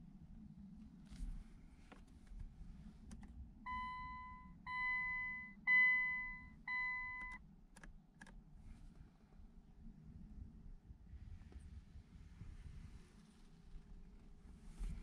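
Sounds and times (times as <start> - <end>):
low steady rumble: 0.0 - 15.0
two-tone warning beep: 3.7 - 7.4.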